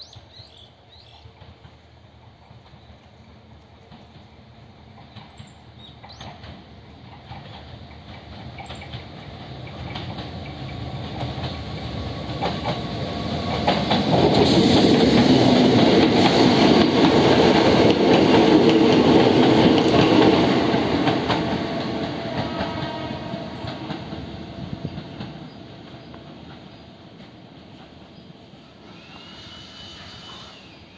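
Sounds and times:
electric train passing: 0.0s - 30.9s
wheels clicking over rail joints: 5.0s - 14.5s.

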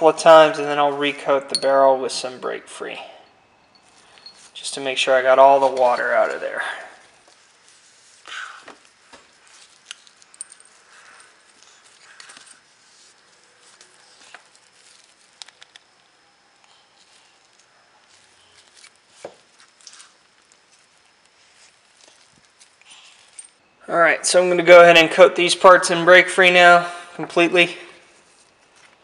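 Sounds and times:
clicks and rustles of metal parts: 3.2s - 4.8s, 8.8s - 23.6s.

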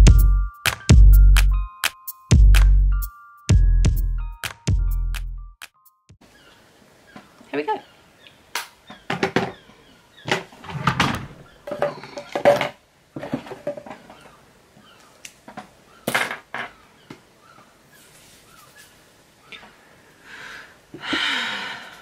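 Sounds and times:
rustles of hair handling: 18.0s - 19.0s.

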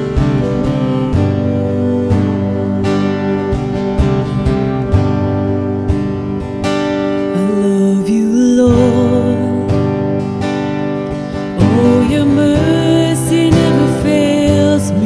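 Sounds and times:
woman singing: 0.0s - 4.4s, 7.2s - 10.2s, 11.5s - 15.0s
strummed acoustic guitar: 0.0s - 15.0s.

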